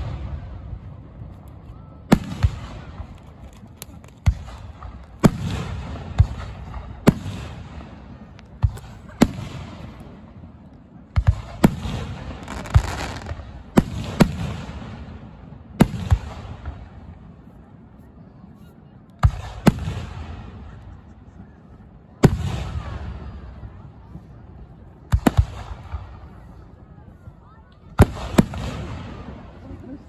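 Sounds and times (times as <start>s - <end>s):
crackling hiss of fireworks: 0.0s - 30.0s
fireworks bangs: 2.1s - 17.2s, 25.0s - 26.7s, 27.9s - 29.7s.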